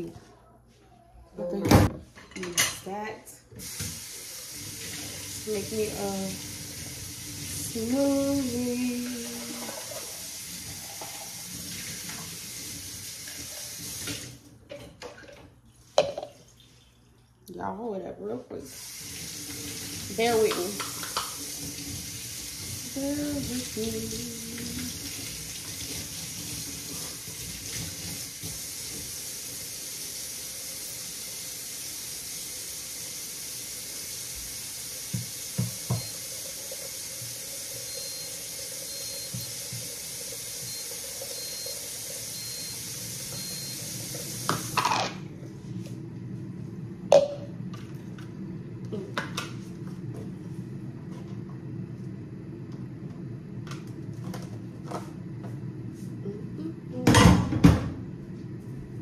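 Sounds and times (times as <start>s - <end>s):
tap running into sink: 35.0s - 36.2s.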